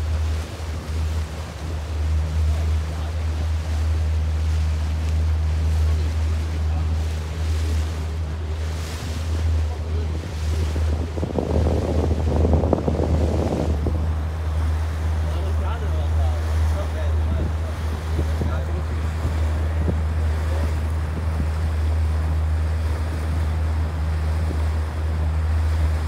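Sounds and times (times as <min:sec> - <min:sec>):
motorboat engine drone: 0:00.0 - 0:26.0
water rushing: 0:00.0 - 0:26.0
wind noise on microphone: 0:09.0 - 0:15.4, 0:16.5 - 0:26.0.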